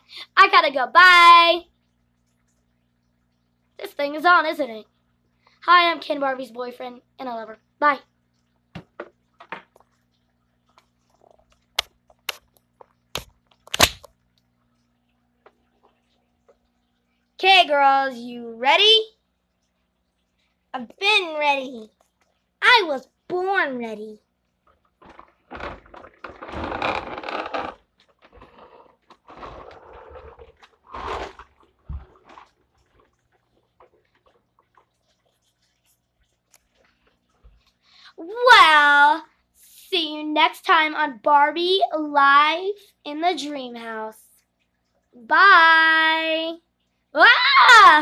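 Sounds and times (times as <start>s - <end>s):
faint electrical hum: 0.0s - 48.0s
plastic toys scraping and rustling: 25.0s - 34.2s.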